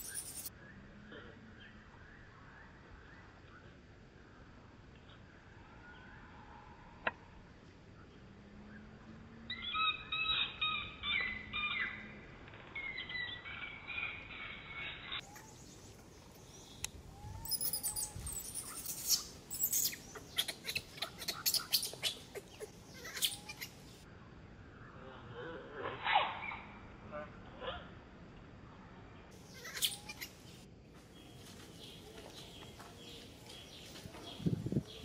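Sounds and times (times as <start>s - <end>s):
high-pitched animal chirping: 0.0s - 0.5s, 17.3s - 23.8s, 29.5s - 30.4s.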